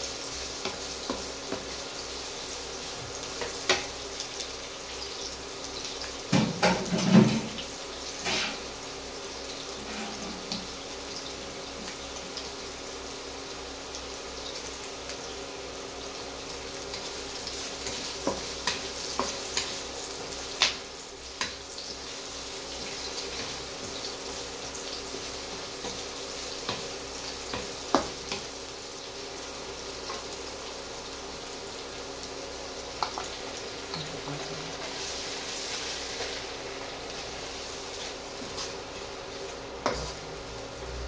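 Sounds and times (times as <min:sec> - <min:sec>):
onions sizzling in oil: 0:00.0 - 0:41.0.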